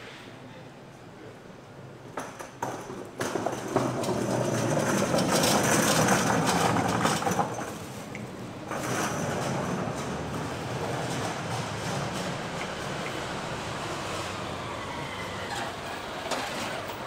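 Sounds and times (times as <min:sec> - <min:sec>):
loud rushing noise: 0:08.5 - 0:16.8.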